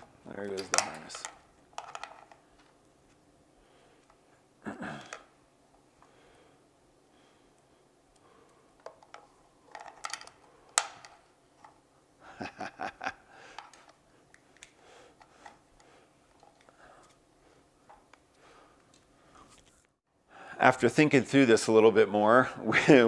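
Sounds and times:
plastic connectors clicking: 8.8 - 11.8, 13.5 - 17.2.

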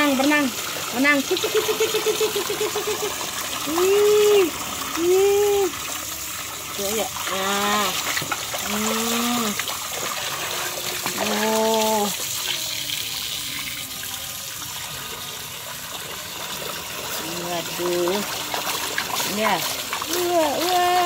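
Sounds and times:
water pouring into bathwater: 0.0 - 21.0
person making drawn-out sounds: 1.5 - 5.8.

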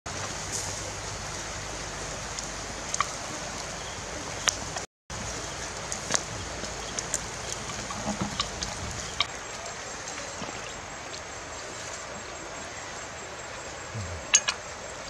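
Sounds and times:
food sizzling on a grill: 0.1 - 3.8.

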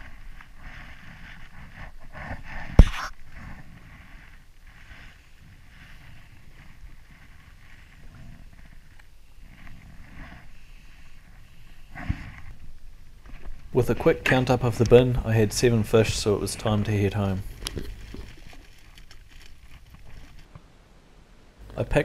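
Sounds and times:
microphone handling noise: 0.0 - 5.1.

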